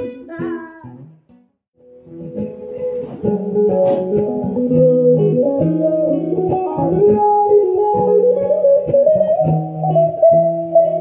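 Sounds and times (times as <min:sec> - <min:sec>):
guitar melody: 0:00.0 - 0:11.0.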